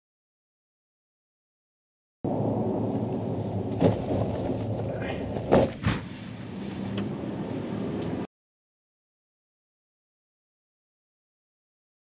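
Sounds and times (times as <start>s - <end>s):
car engine and road rumble: 2.2s - 8.3s
sharp knocks from bumps: 5.4s - 6.2s.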